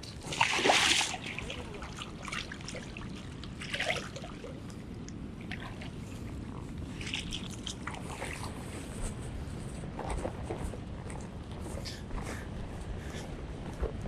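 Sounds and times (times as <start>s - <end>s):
seawater sloshing around boots: 0.0s - 4.7s, 5.4s - 9.3s
water splashing: 0.0s - 4.8s, 5.4s - 8.7s.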